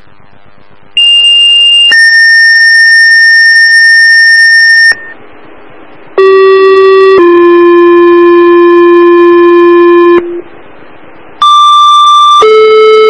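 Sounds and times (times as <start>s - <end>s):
two-tone pager alert over radio: 1.0s - 5.1s, 11.4s - 13.0s.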